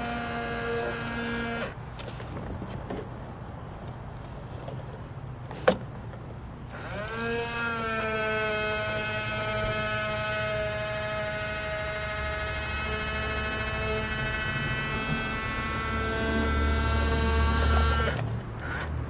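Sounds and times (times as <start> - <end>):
toy electric motor whining: 0.0 - 1.8, 6.7 - 18.9.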